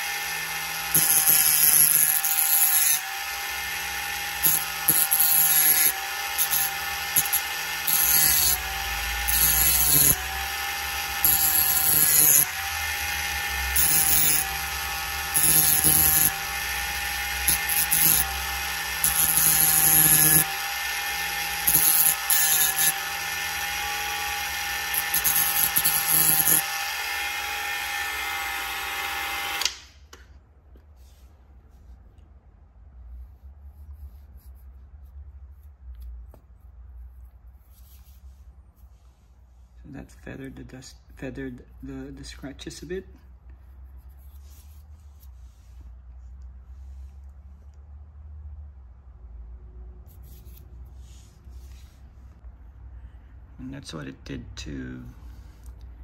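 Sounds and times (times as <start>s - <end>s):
rotary tool whining: 0.0s - 29.8s
sanding disc scraping metal: 0.8s - 3.1s, 3.8s - 26.6s.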